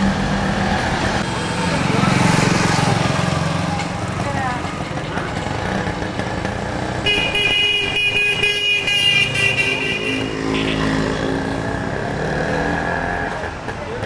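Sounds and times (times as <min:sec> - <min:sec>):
street traffic: 0:00.0 - 0:14.0
vehicle horn: 0:07.0 - 0:11.2.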